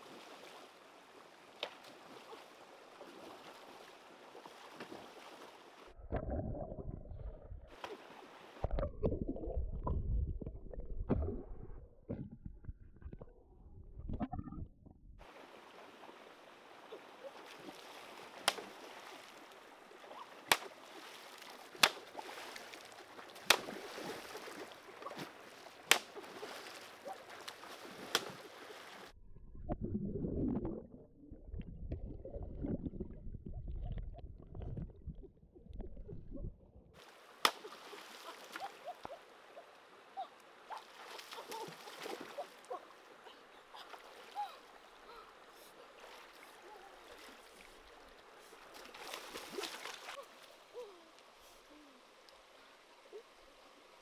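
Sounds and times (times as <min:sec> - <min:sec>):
stones knocking underwater: 0:08.6 - 0:14.6
hands splashing in stream: 0:15.4 - 0:29.1, 0:37.0 - 0:39.4, 0:40.7 - 0:43.0, 0:45.8 - 0:50.7
running water: 0:37.0 - 0:54.0.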